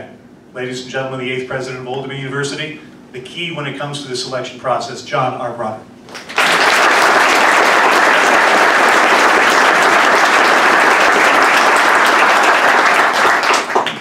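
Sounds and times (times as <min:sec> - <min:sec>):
audience applauding: 0:06.1 - 0:14.0.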